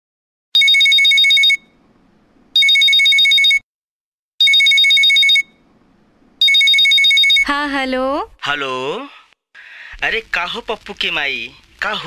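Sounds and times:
phone ringing with bell ringtone: 0.6 - 1.8, 2.6 - 3.6, 4.4 - 5.6, 6.4 - 7.5.

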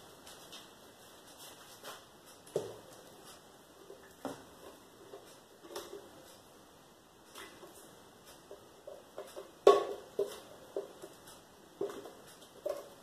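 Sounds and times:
light knocks and clicks of containers: 7.3 - 13.0.

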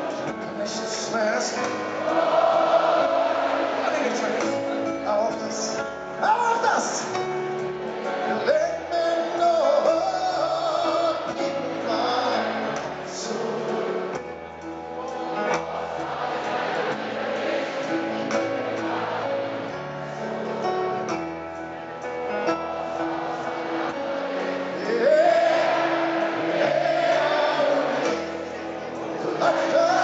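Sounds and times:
piano: 0.0 - 30.0
person singing: 8.3 - 14.2, 24.7 - 28.4, 29.0 - 30.0.

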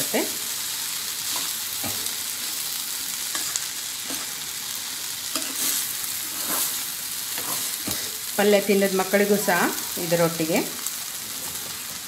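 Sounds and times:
light sizzle of frying: 0.0 - 12.0
metal spatula scraping pan: 5.3 - 8.2.

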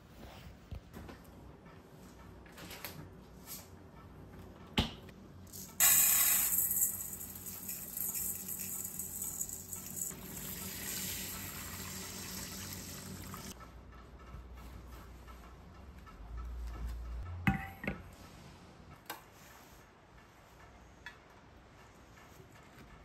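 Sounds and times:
tap water running: 5.8 - 13.6.

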